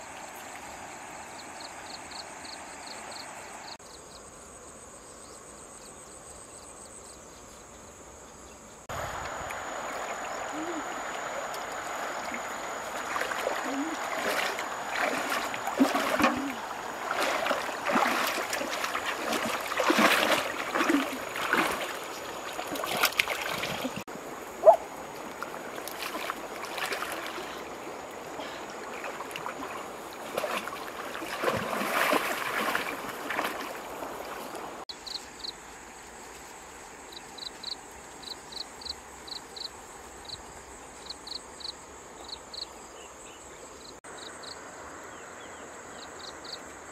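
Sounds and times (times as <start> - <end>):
insects chirping: 0.0 - 46.9
water sloshing and splashing: 9.5 - 34.8.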